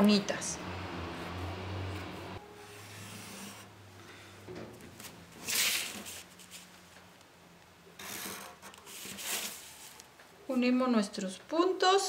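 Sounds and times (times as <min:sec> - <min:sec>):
paper and ruler shifting: 0:02.6 - 0:03.7, 0:05.4 - 0:06.7, 0:08.0 - 0:10.1.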